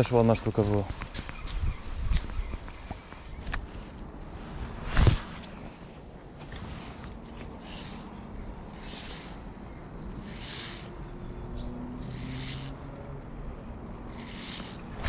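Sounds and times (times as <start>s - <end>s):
soft rustling swishes: 0.4s - 11.4s.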